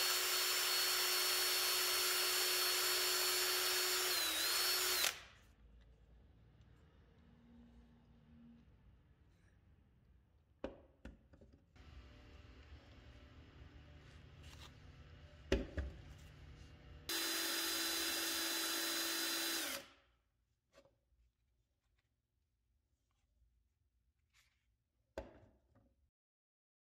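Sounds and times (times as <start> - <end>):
cordless drill motor running: 0.0 - 5.3, 17.1 - 19.9.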